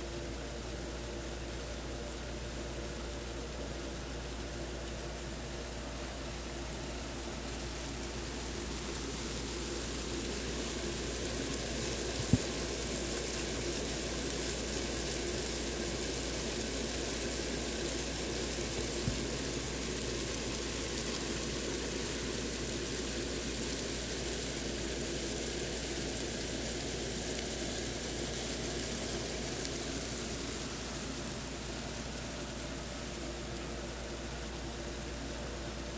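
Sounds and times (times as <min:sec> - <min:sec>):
mealworms rustling in grain: 0:00.0 - 0:35.9.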